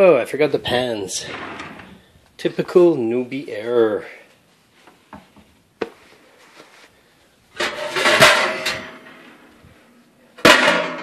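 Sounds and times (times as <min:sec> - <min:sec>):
metal pans clattering: 0:07.6 - 0:09.5, 0:10.4 - 0:11.0.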